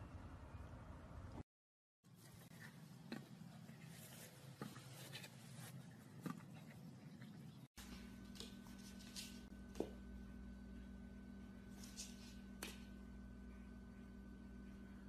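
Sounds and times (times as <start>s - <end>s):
low hum: 6.0s - 15.0s.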